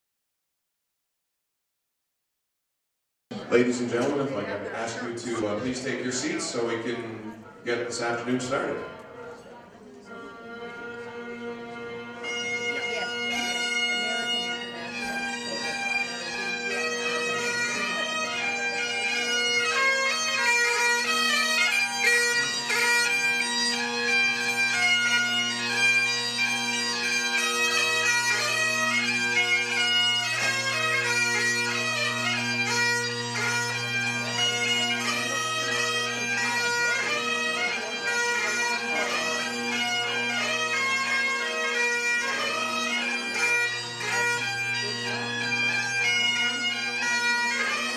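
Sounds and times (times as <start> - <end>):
bagpipe chanters melody: 10.0 - 47.9
bagpipe drones humming: 10.0 - 47.9.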